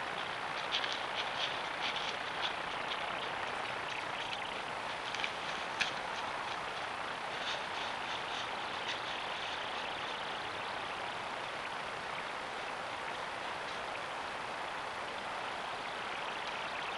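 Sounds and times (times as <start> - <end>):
microphone hiss: 0.0 - 16.9
faint light ticks: 0.1 - 6.9, 13.1 - 14.0, 16.3 - 16.7.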